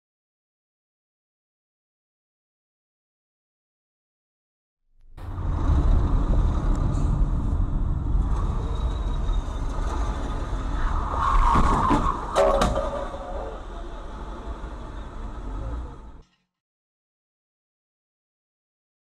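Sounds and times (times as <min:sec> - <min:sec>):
car road and engine rumble: 0:05.0 - 0:16.2.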